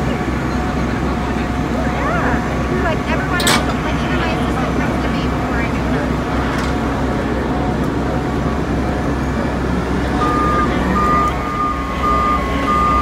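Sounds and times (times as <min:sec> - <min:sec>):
diesel engine running: 0:00.0 - 0:13.0
electronic warning beeper: 0:10.2 - 0:13.0.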